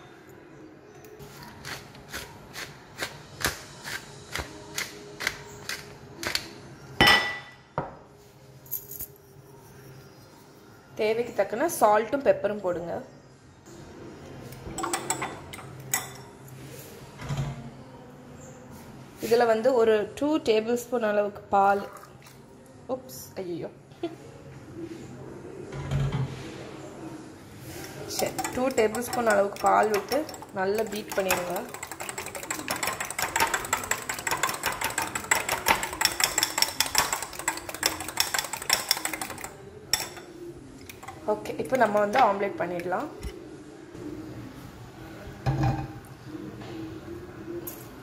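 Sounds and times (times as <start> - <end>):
fork beating eggs clinking bowl: 28.1 - 42.3.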